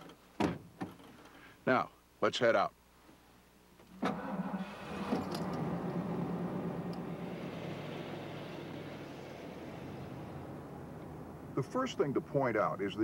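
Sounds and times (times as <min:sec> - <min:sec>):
pickup truck engine running: 0:04.2 - 0:11.6.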